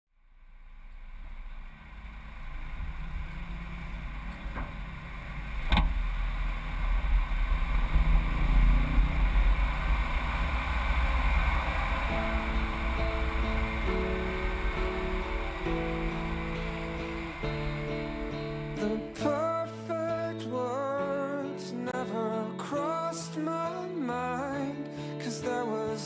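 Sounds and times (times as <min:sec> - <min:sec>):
wind and road rumble: 0:00.2 - 0:19.2.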